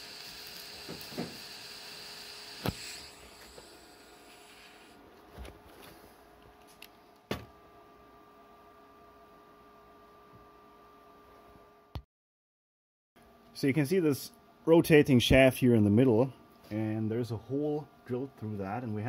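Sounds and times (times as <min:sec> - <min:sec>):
welding arc hissing: 0:00.0 - 0:05.0.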